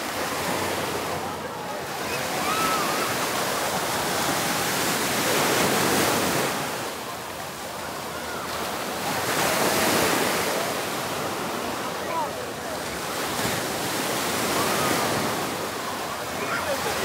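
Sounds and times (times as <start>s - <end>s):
faint distant voices: 0.0s - 17.0s
surf breaking on sand beach: 0.0s - 17.0s.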